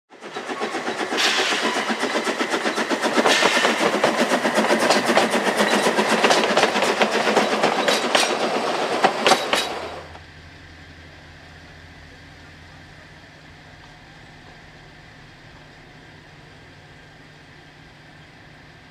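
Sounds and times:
train wheels clattering: 0:00.1 - 0:10.2.

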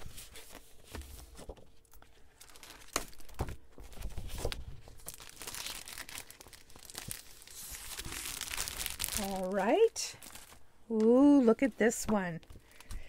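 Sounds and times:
paper sheets rustling: 0:00.0 - 0:10.6
cellophane crinkling: 0:01.4 - 0:10.7.

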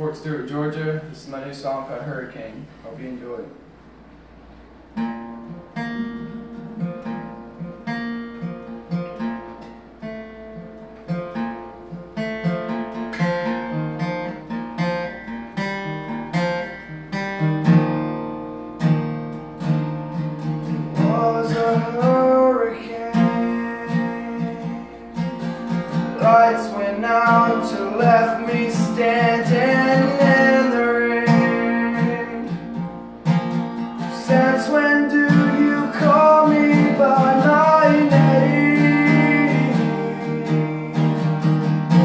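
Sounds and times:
acoustic guitar picking and strumming: 0:00.0 - 0:42.0
wordless vocal: 0:34.2 - 0:41.4.

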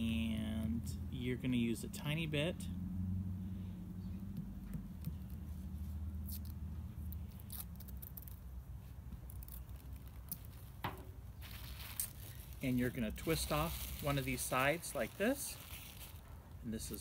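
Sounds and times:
low steady rumble: 0:00.0 - 0:17.0
tape peeling and tearing: 0:04.8 - 0:16.6.

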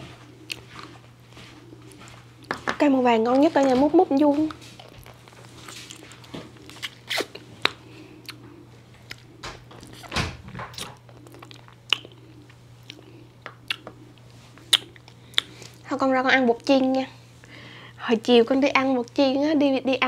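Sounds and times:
faint low hum: 0:00.0 - 0:20.0
chewing and mouth noises: 0:00.2 - 0:15.9.

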